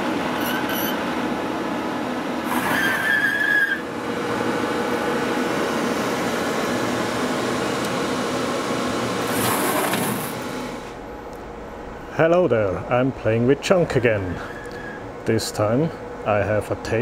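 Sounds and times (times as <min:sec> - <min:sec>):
mechanical whir: 0:02.4 - 0:05.5, 0:09.0 - 0:10.9
high squeal: 0:02.5 - 0:03.9.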